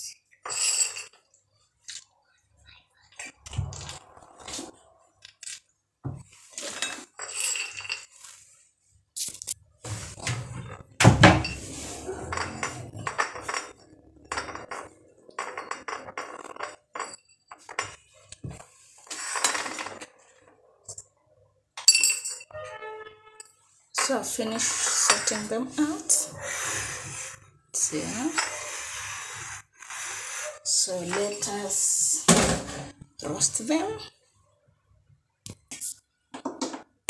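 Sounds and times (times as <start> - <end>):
nuts clattering on china plates: 6.7 - 8.2.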